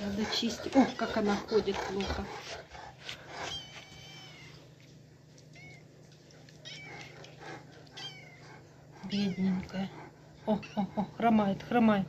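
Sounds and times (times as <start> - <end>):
kitten meowing: 3.5 - 4.6, 5.5 - 5.9, 6.6 - 7.2, 8.0 - 9.8.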